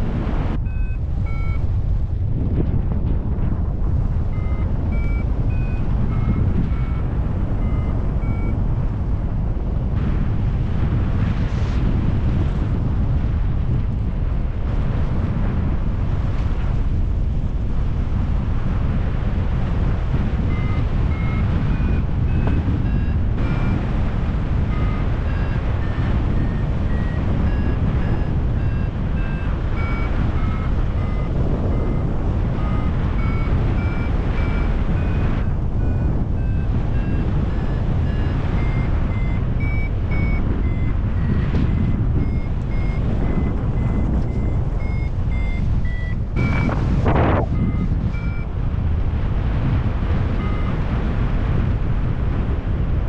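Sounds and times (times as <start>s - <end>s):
wind rushing on microphone: 0.0s - 53.0s
variometer beeping: 0.5s - 2.1s, 3.8s - 9.2s, 19.8s - 51.9s.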